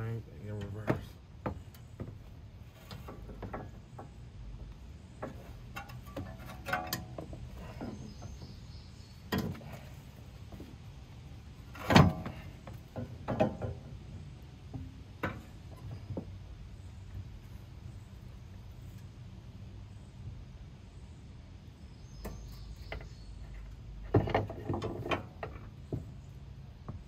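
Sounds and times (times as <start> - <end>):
metal knocks and clunks: 2.8 - 4.2, 5.2 - 8.6, 9.2 - 9.9, 11.7 - 14.0, 14.7 - 16.4, 22.2 - 27.0.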